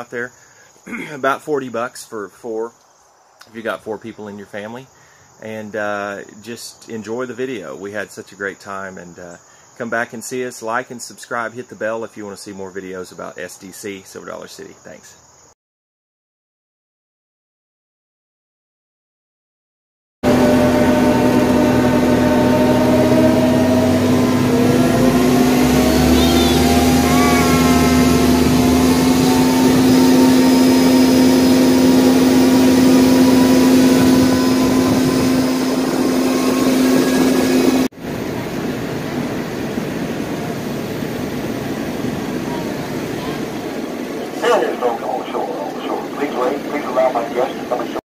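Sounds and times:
tram motor humming: 20.2 - 48.0
gliding squeals: 20.3 - 37.9.

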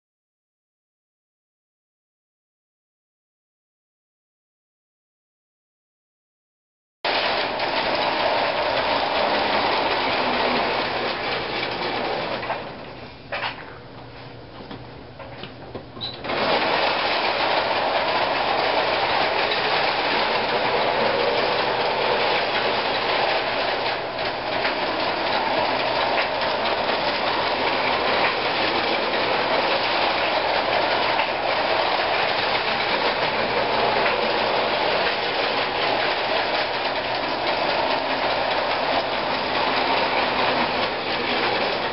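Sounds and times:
toy train wheels rattling on rails: 7.1 - 12.7, 16.2 - 41.9
toy train motor whirring: 7.2 - 12.4, 16.2 - 41.9.

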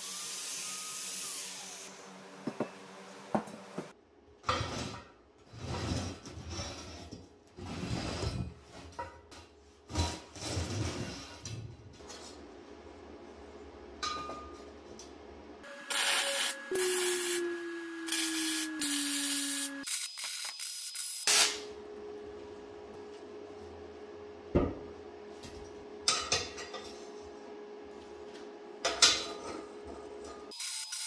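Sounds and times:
welder crackling hiss: 15.8 - 21.7.

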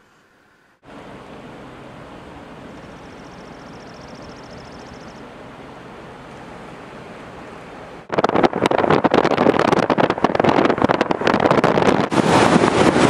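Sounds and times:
shallow mountain river rushing: 11.8 - 13.0.

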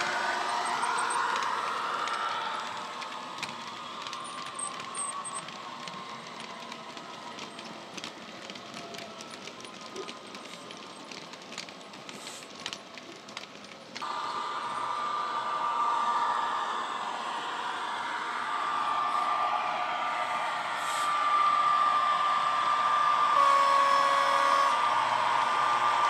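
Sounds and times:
model wagons clicking over track: 0.0 - 14.8
diesel engine sound: 14.0 - 26.0.

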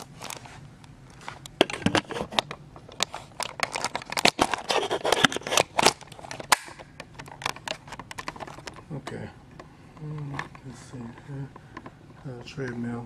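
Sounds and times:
camera handling clicks and rustles: 1.1 - 8.9.

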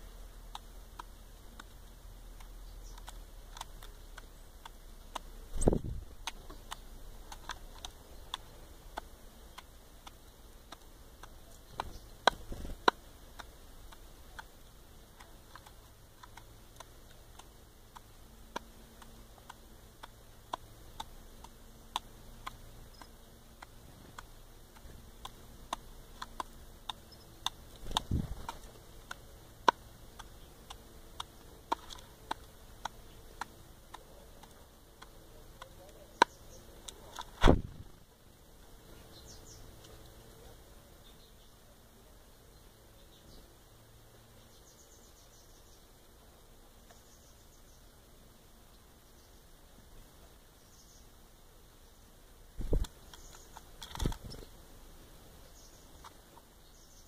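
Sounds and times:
bird bill clicking on bowl: 0.2 - 37.4, 52.6 - 54.6.

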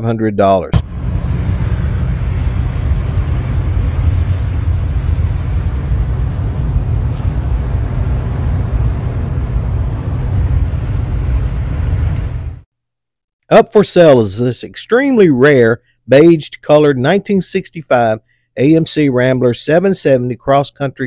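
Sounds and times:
car engine and road rumble: 0.8 - 12.7.

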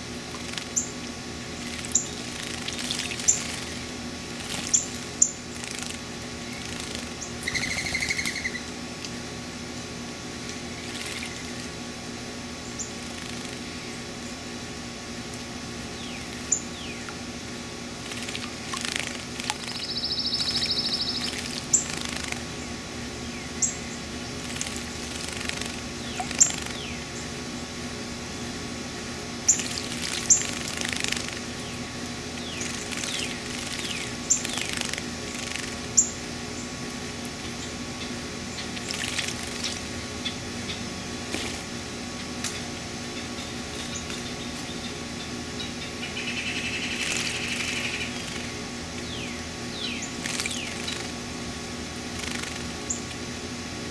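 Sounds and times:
birds splashing in water: 0.1 - 8.6, 10.5 - 11.8, 12.8 - 13.9, 17.8 - 22.7, 24.0 - 27.4, 29.4 - 36.1, 37.4 - 40.1, 41.2 - 41.8, 46.7 - 48.6, 50.1 - 51.3, 51.9 - 53.3
high bird chip notes: 6.4 - 8.7, 19.6 - 24.4.

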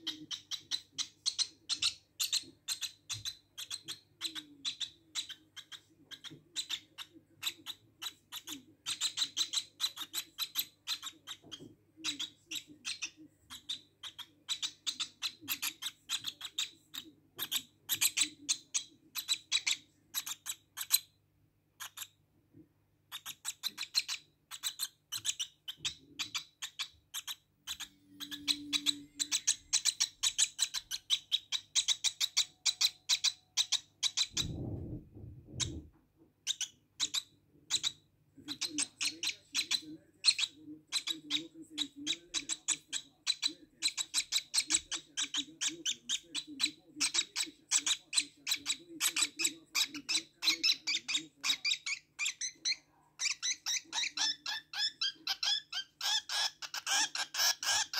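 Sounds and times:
bird chick cheeping: 0.0 - 21.0, 23.1 - 57.9
low thump: 34.4 - 35.9.

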